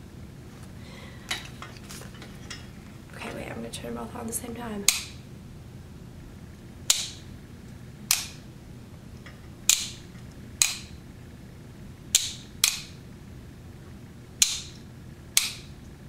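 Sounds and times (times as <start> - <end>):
light switches clicking: 4.9 - 5.2, 6.9 - 7.2, 8.1 - 8.4, 9.6 - 10.0, 10.6 - 11.0, 12.1 - 12.9, 14.4 - 14.8, 15.4 - 15.7.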